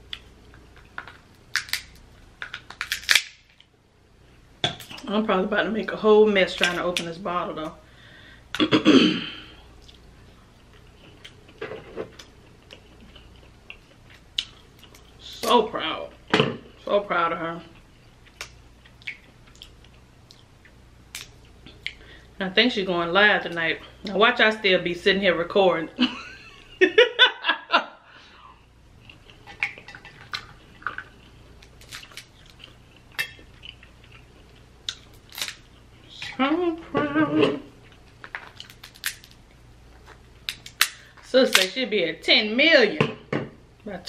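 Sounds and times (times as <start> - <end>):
crab shell cracking: 0.6 - 3.7, 29.3 - 32.8, 34.8 - 35.7, 38.0 - 39.4, 40.4 - 41.7
person laughing: 26.0 - 28.0, 37.0 - 37.7.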